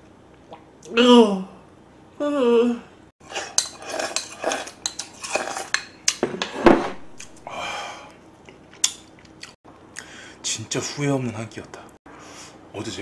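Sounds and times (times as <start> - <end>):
wooden spoon scraping bowl: 3.2 - 7.0.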